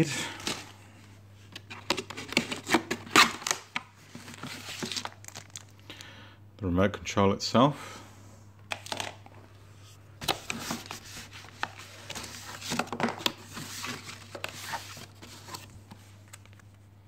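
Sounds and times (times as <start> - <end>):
plastic packaging crinkling: 1.6 - 5.8
cardboard box rustling: 10.2 - 15.8.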